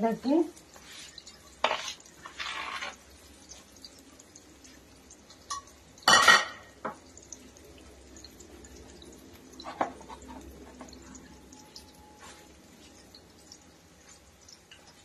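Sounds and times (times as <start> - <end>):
faint sizzling of deep-frying: 0.0 - 15.0
metal kitchenware clattering: 1.6 - 3.0, 5.4 - 7.0.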